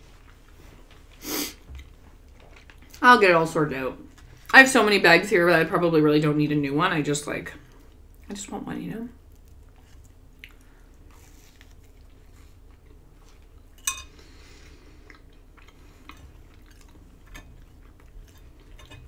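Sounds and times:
soft chewing: 0.0s - 3.0s, 4.0s - 4.6s, 7.5s - 8.4s, 9.1s - 19.0s.

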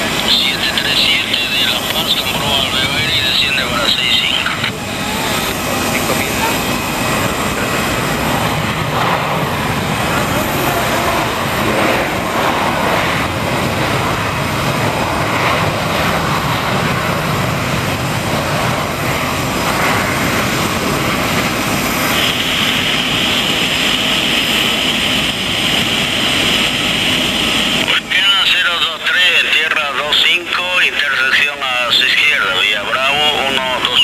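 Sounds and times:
high engine whine: 0.0s - 34.0s
jet engine rush: 0.0s - 34.0s.

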